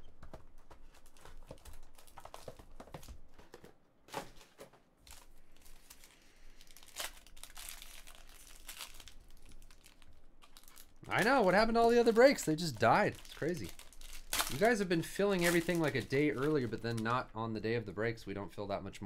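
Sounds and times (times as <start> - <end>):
card box clicks and rustles: 0.2 - 6.0
foil wrapper crinkling and tearing: 5.1 - 17.2.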